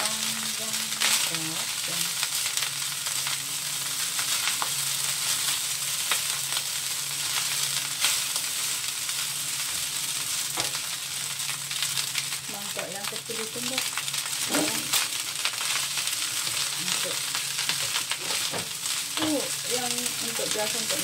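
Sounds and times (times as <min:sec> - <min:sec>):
rice sizzling in a wok: 0:00.0 - 0:21.0
spatula scraping wok: 0:14.3 - 0:21.0.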